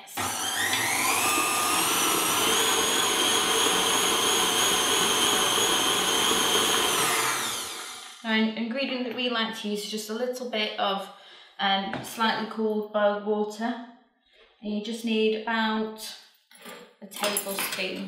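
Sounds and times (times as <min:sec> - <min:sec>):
stand mixer motor whine: 0:00.1 - 0:08.2.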